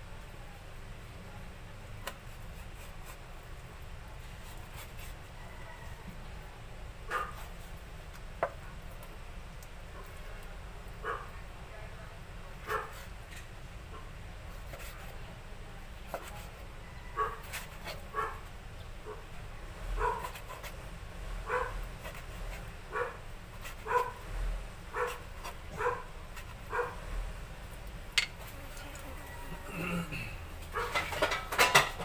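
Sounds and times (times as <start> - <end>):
dog barking: 7.1 - 7.4, 11.0 - 11.4, 12.6 - 13.0, 17.2 - 17.5, 18.1 - 18.4, 20.0 - 20.3, 21.4 - 21.8, 22.9 - 23.2, 23.8 - 24.2, 24.9 - 25.2, 25.8 - 26.1, 26.7 - 27.0, 30.7 - 31.1.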